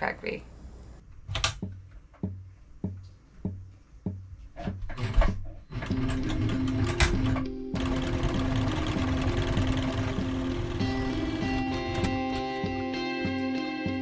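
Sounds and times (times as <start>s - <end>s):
sewing machine stitching: 4.9s - 12.4s
background music: 5.7s - 14.0s.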